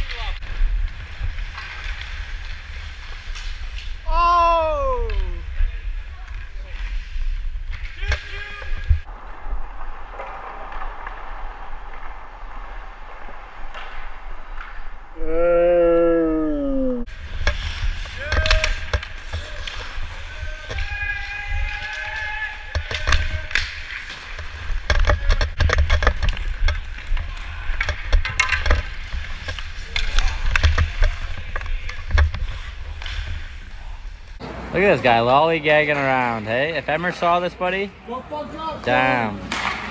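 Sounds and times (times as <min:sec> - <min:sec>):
skate blades scraping ice: 0:00.0 - 0:04.2, 0:05.0 - 0:15.1, 0:17.1 - 0:37.4
hockey sticks and pucks clacking: 0:00.0 - 0:15.1, 0:17.2 - 0:39.9
hockey stick clacking on puck: 0:17.4 - 0:33.4, 0:39.4 - 0:39.9.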